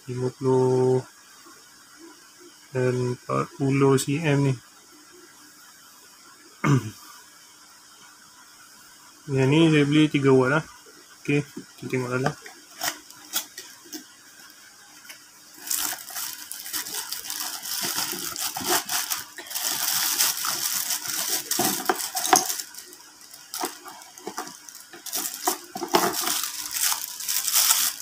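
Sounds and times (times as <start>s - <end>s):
plastic wrapping crinkling: 12.1s - 14.1s, 15.0s - 28.0s
cardboard rustling: 15.6s - 28.0s.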